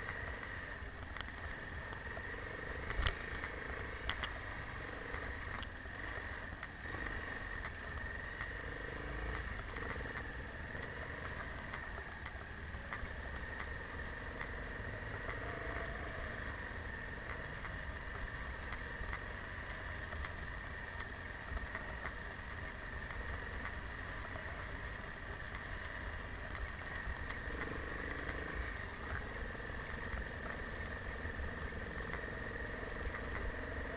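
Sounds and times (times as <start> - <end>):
light clicks: 0.0 - 2.2, 2.8 - 4.4, 21.0 - 31.0, 31.9 - 33.9
motorcycle engine running: 0.0 - 33.9.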